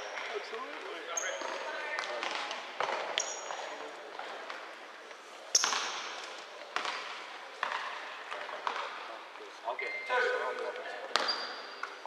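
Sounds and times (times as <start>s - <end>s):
basketball bouncing on indoor court: 0.0s - 4.6s, 5.5s - 9.0s, 11.1s - 12.0s.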